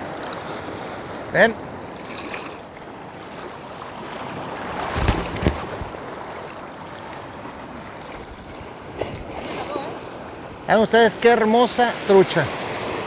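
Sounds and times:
ocean surf washing: 0:00.0 - 0:13.0
wind buffeting microphone: 0:04.0 - 0:06.4.

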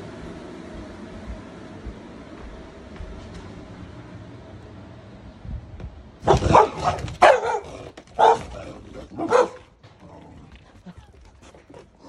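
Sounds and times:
large dog barking: 0:06.2 - 0:09.7.

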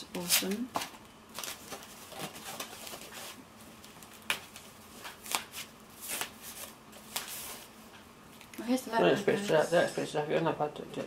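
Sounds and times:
packaging rustling and crinkling: 0:00.2 - 0:07.7.

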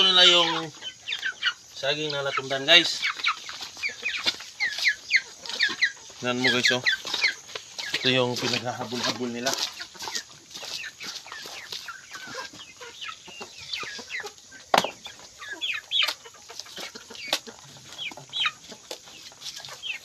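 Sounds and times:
chickens clucking: 0:00.0 - 0:20.0.

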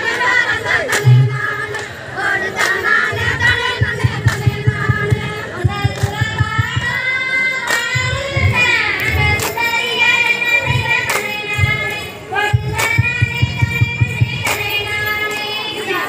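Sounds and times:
women singing folk song: 0:00.0 - 0:16.0
hand claps in unison: 0:00.8 - 0:07.0, 0:07.6 - 0:11.8, 0:12.6 - 0:15.5
quick low beat: 0:01.0 - 0:01.7, 0:03.2 - 0:07.2, 0:12.5 - 0:15.0.

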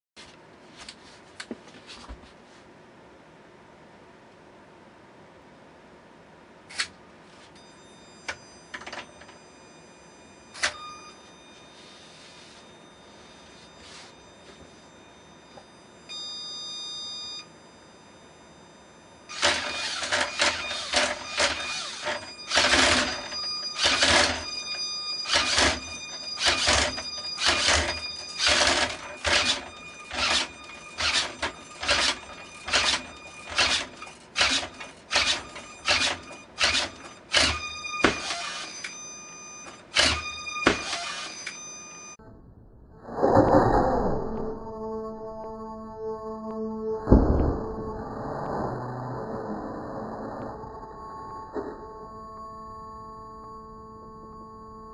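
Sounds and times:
short steady beep: 0:07.6 - 0:19.8, 0:20.4 - 0:42.2.

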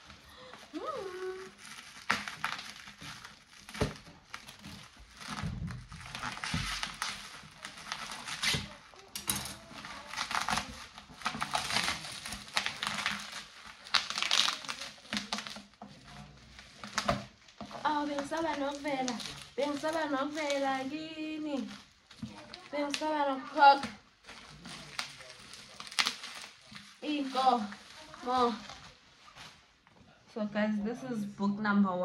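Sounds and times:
parcel wrapping crinkling: 0:00.0 - 0:30.0.

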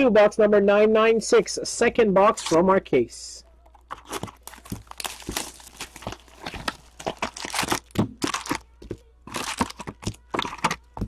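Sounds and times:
cardboard and wrapping tearing: 0:03.7 - 0:11.0.

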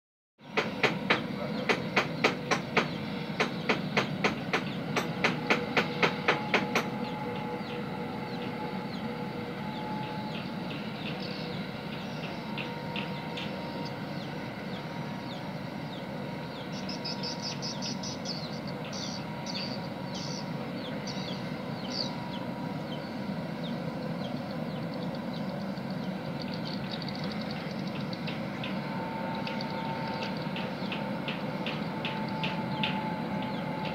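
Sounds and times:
industrial hum: 0:00.4 - 0:33.9
sharp rhythmic knocking: 0:00.6 - 0:06.9.

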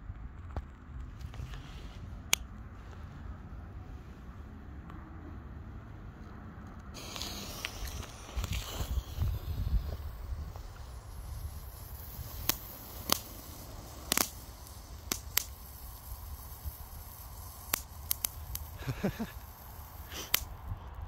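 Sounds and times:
sharp firework pops: 0:07.0 - 0:20.6
firework fountain hissing: 0:07.0 - 0:20.7.

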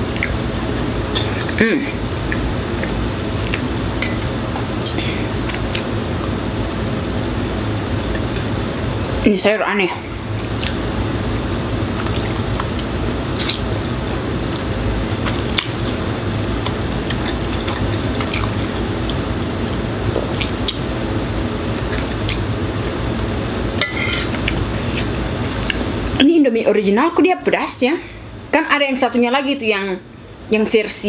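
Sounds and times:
air conditioner noise: 0:00.0 - 0:31.0
spoon scraping plate: 0:23.8 - 0:24.4.

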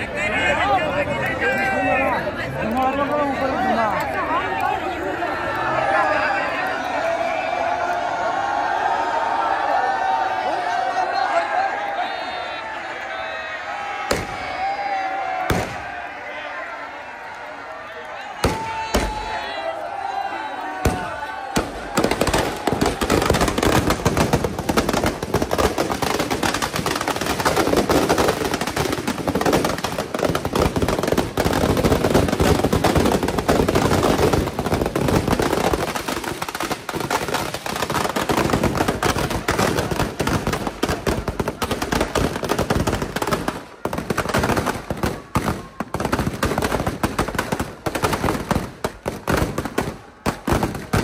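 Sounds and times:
firecrackers crackling and banging: 0:14.1 - 0:14.7, 0:15.4 - 0:16.1, 0:18.2 - 0:19.4, 0:20.6 - 0:51.0.

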